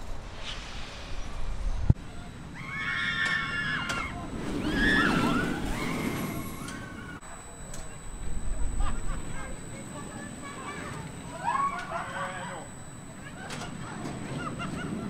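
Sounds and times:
roller coaster rumbling on track: 0.0s - 15.0s
riders screaming: 2.0s - 7.2s, 10.6s - 12.7s.

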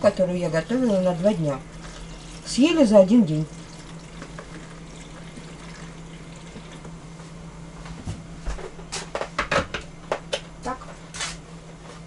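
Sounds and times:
low steady hum: 0.0s - 12.0s
tap water running into vessel: 3.5s - 6.9s.

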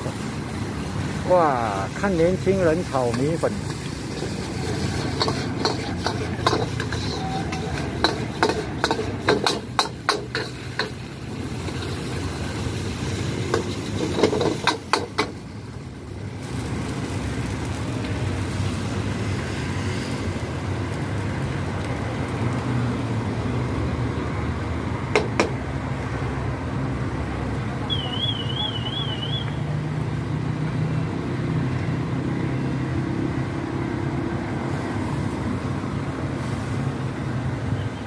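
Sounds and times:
gas burner roaring: 0.0s - 37.8s
metal ladle clanking on wok: 4.9s - 11.0s.

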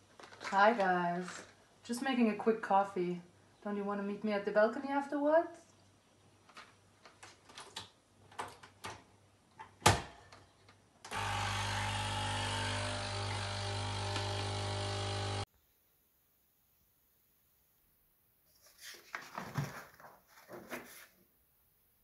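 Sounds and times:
coffee machine pump buzzing: 11.1s - 15.5s.

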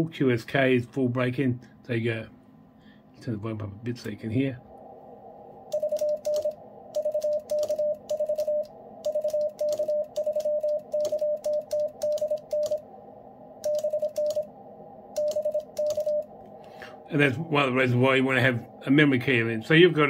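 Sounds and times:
morse code beeps: 5.7s - 12.8s, 13.6s - 14.5s, 15.2s - 16.3s.

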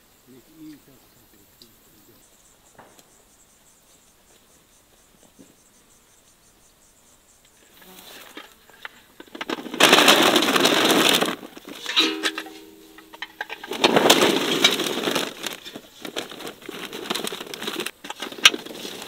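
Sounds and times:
light rustling: 7.6s - 19.0s
fruit rattling into crate: 9.2s - 19.0s.

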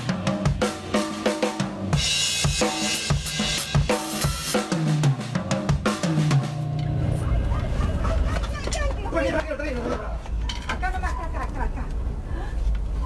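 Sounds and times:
drum kit played hard: 0.0s - 8.6s.

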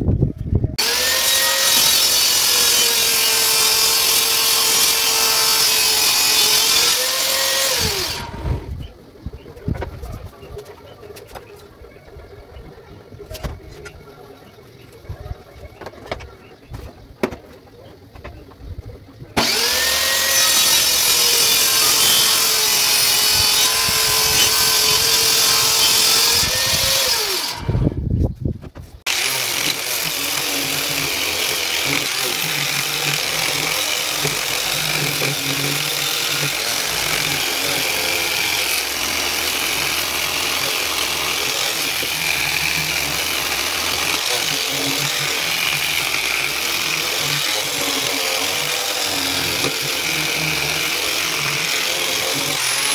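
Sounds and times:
angle grinder sanding wood: 0.8s - 8.8s, 19.4s - 27.9s, 29.1s - 52.9s
table saw running: 0.8s - 8.8s, 19.4s - 27.9s, 29.1s - 52.9s.

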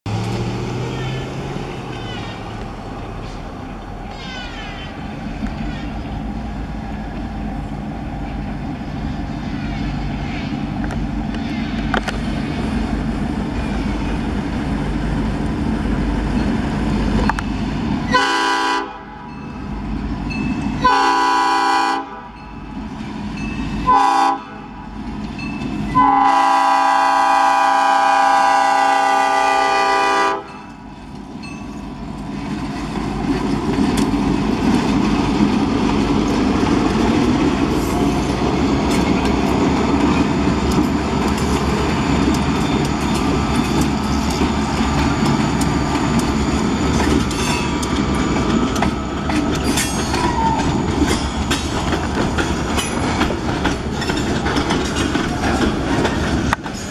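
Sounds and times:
diesel locomotives rumbling: 0.0s - 56.9s
train air horn blasts: 0.8s - 2.6s, 4.0s - 6.2s, 18.1s - 19.3s, 20.8s - 22.4s, 23.8s - 24.9s, 25.9s - 30.5s.

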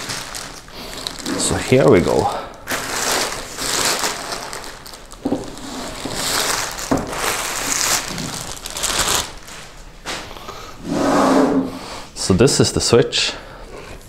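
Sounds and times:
plastic bag crinkling: 0.0s - 9.9s.

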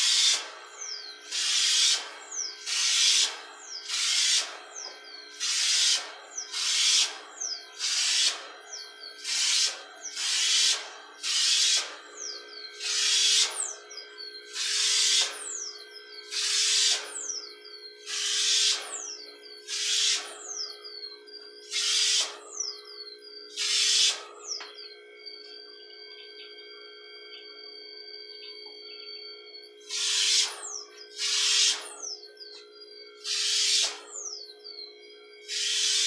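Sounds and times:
compressor hum: 0.0s - 36.0s
spray gun hissing: 1.3s - 2.0s, 2.6s - 4.4s, 5.4s - 6.0s, 19.7s - 20.2s, 23.6s - 24.2s.

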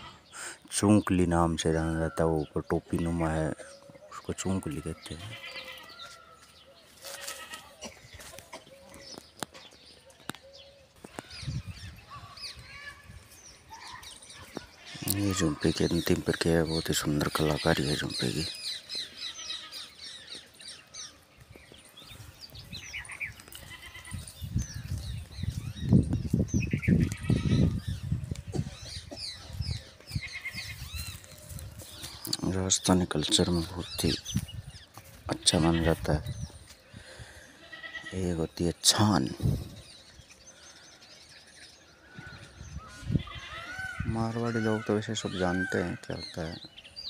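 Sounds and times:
small birds chirping: 0.0s - 47.0s
goats bleating: 5.2s - 6.2s, 7.0s - 8.6s, 19.2s - 20.8s, 23.0s - 24.4s, 35.3s - 36.1s, 37.6s - 38.2s.

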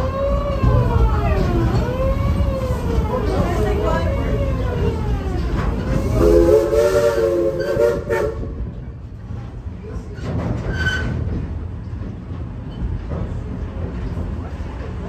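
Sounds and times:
train rumbling along track: 0.0s - 15.0s
steam locomotive chime whistle: 6.1s - 8.4s.

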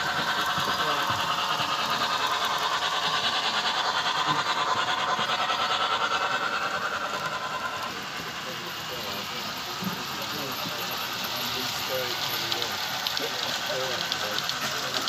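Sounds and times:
model steam locomotive running: 0.0s - 15.0s.

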